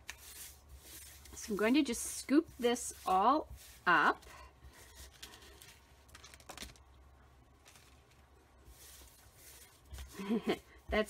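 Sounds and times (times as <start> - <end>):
paper pieces rustling and ticking: 3.0 - 6.8.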